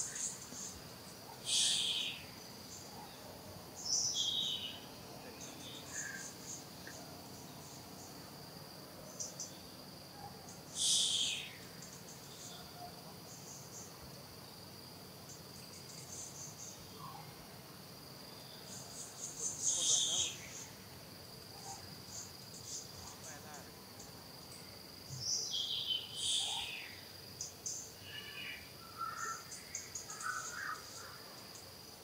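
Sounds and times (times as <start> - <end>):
insects droning: 0.0 - 32.0
high chirping calls: 1.4 - 2.4, 10.8 - 11.8, 19.0 - 20.7, 25.3 - 27.0.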